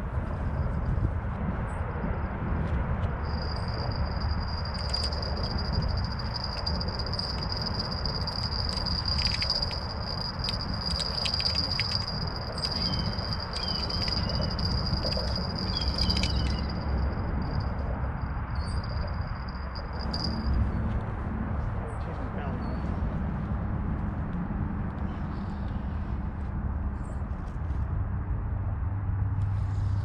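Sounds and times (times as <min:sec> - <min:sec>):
insects trilling: 0:03.2 - 0:20.5.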